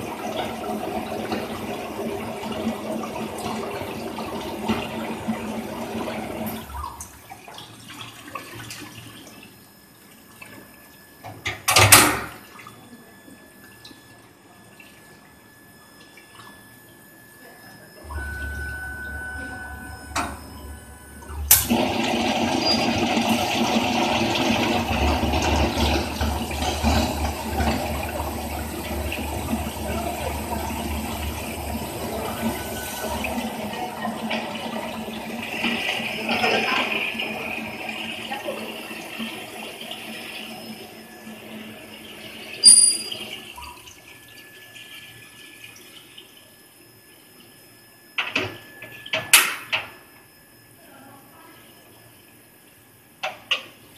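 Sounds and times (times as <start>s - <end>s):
steady high whine: 17.4s - 38.6s
low hum: 18.0s - 21.9s.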